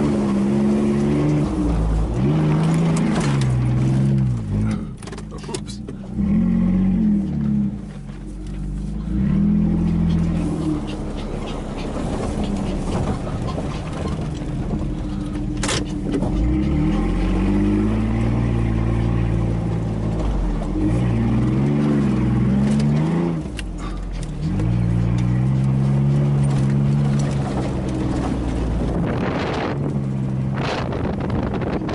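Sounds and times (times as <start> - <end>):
pickup engine revving: 0.0 - 31.9.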